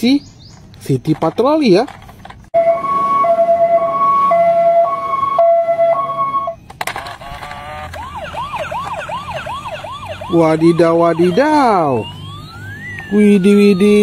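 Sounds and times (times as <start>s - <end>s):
two-tone siren: 2.6s - 6.6s, 7.4s - 14.0s
toy electronic siren wailing: 2.6s - 14.0s.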